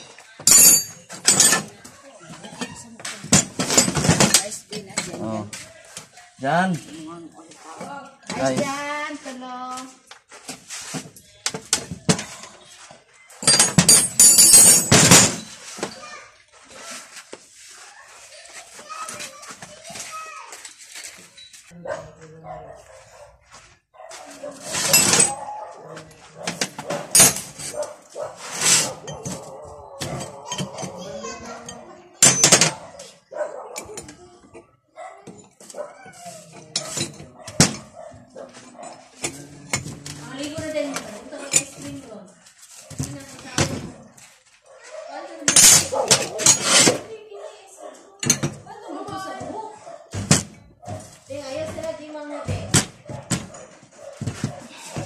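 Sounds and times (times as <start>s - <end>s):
metal tools clinking: 0.0s - 1.8s, 13.3s - 16.0s, 24.6s - 25.6s, 26.5s - 33.0s, 35.3s - 38.1s, 41.3s - 42.0s, 45.5s - 47.0s
wrench clinking on metal: 0.4s - 1.7s, 13.4s - 15.4s
ringing metal clatter: 0.4s - 1.8s, 13.4s - 15.6s, 24.7s - 25.5s
dog barking: 21.8s - 27.1s, 27.7s - 32.0s, 32.7s - 34.0s, 34.9s - 39.5s, 44.6s - 46.6s, 47.3s - 48.2s, 49.7s - 50.2s, 52.2s - 55.0s.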